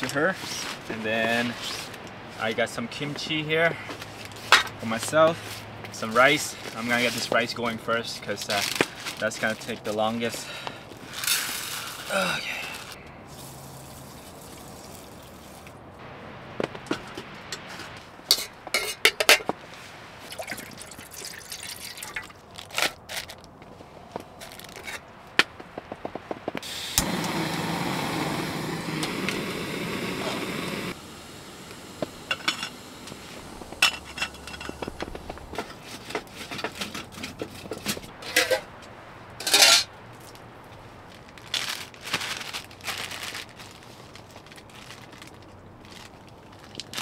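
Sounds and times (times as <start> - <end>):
water pouring into a pot: 20.2 - 22.3.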